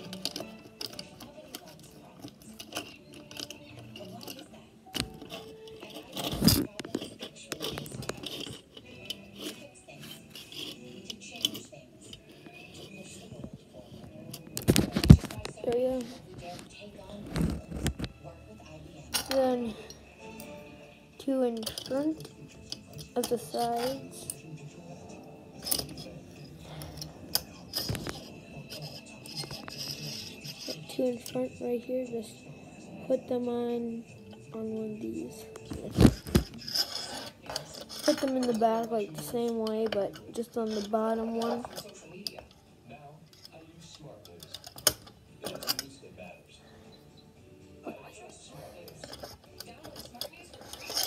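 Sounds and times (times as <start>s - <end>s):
metal clips clicking and rattling: 0.0s - 13.3s, 19.1s - 19.6s, 21.4s - 24.5s, 25.6s - 31.4s, 35.5s - 42.6s, 43.3s - 46.0s, 48.2s - 51.0s.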